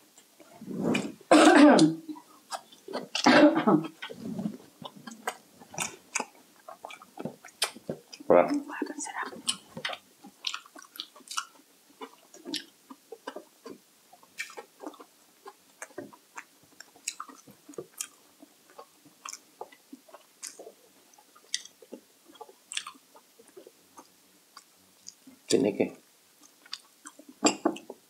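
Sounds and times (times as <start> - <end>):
person chewing food: 2.2 - 25.5, 26.3 - 28.0
wet mouth clicks and smacks: 4.8 - 8.0, 8.8 - 13.8, 21.4 - 22.0.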